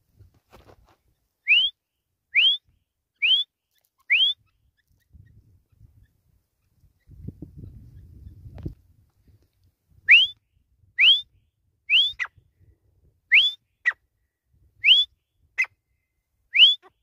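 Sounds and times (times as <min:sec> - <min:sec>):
bird whistled calls: 0:01.4 - 0:01.8, 0:02.4 - 0:02.6, 0:03.2 - 0:03.5, 0:04.1 - 0:04.5, 0:10.1 - 0:10.4, 0:11.0 - 0:12.4, 0:13.3 - 0:14.0, 0:14.8 - 0:15.2, 0:16.5 - 0:16.9.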